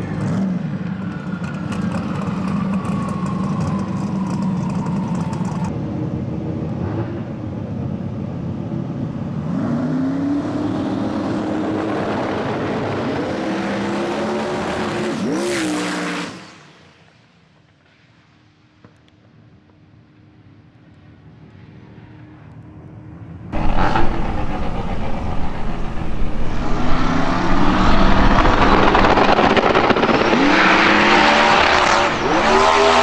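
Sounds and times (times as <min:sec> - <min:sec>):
race car engine revving: 0:23.6 - 0:33.0.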